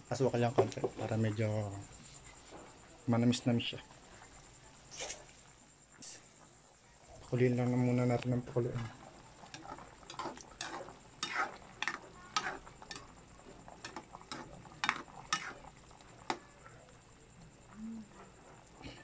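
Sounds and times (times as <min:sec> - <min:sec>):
metal spoon scraping a pan: 0:09.4 - 0:13.1, 0:13.8 - 0:16.4.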